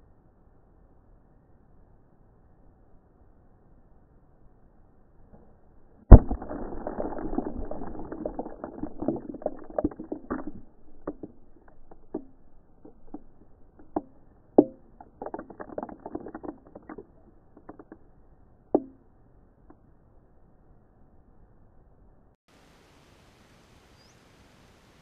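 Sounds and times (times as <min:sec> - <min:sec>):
falling debris clatter: 0:06.1 - 0:18.0.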